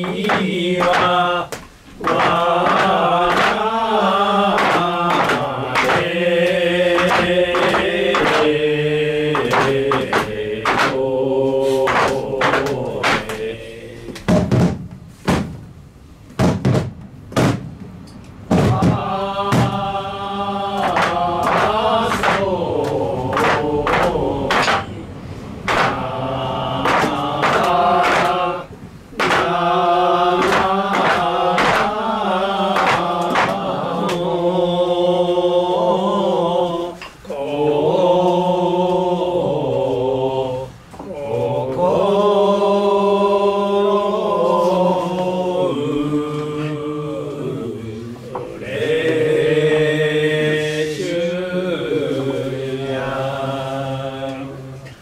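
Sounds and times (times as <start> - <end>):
sharp knocks: 0.0 - 3.7, 4.4 - 8.6, 9.3 - 11.0, 11.8 - 13.5, 14.1 - 20.0, 20.8 - 25.0, 25.6 - 26.2, 26.8 - 28.5, 29.1 - 29.6, 30.3 - 32.0, 32.7 - 34.2
voices chanting: 0.0 - 15.4, 18.2 - 55.0.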